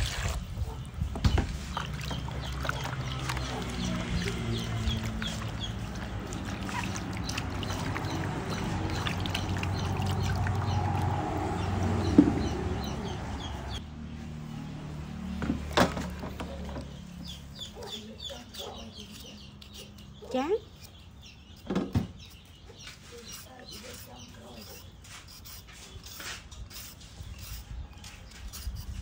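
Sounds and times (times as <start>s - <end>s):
water sloshing in a basin: 0.0s - 0.4s, 1.4s - 12.4s
birds chirping: 0.3s - 29.0s
hands scrubbing vegetables: 1.5s - 11.6s
sharp knocks: 12.1s - 12.6s.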